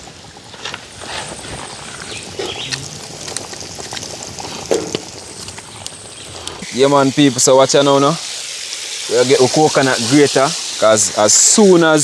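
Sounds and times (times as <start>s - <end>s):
oil bubbling and crackling: 0.0s - 12.0s.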